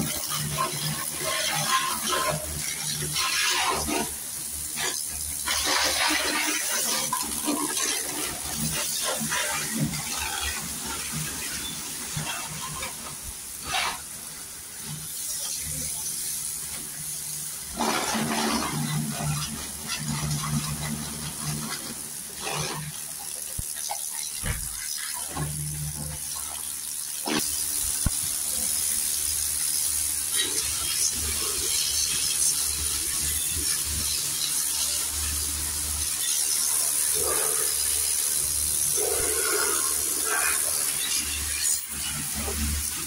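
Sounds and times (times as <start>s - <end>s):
water spraying: 0.0s - 43.0s.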